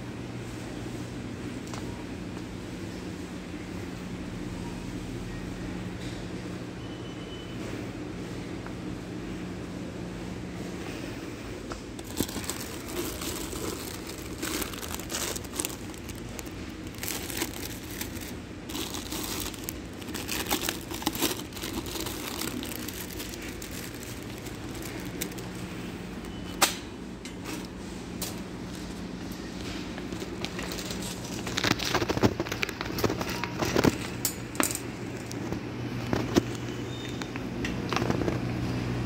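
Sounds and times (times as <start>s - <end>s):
store background hum: 0.0s - 39.0s
crinkling handling noise: 10.9s - 38.5s.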